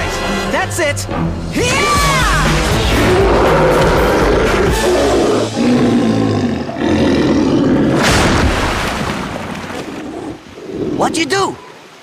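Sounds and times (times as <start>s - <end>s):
cartoon alligator roaring: 2.9s - 8.0s.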